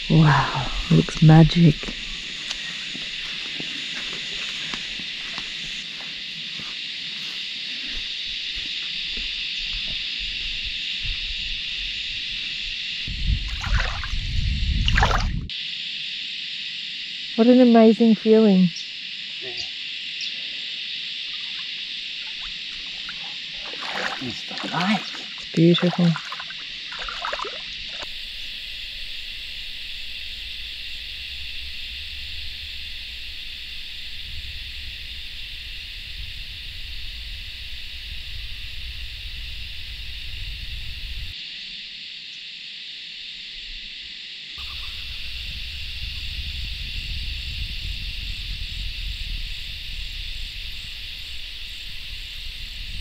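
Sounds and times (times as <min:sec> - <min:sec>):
insects droning: 0:00.0 - 0:53.0
wind rumble on microphone: 0:08.5 - 0:15.5, 0:30.2 - 0:41.4, 0:44.6 - 0:53.0.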